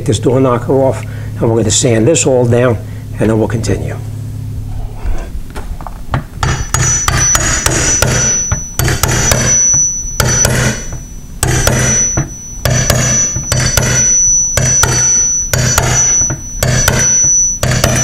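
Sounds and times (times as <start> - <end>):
hammer tapping on steel: 6.2 - 18.0.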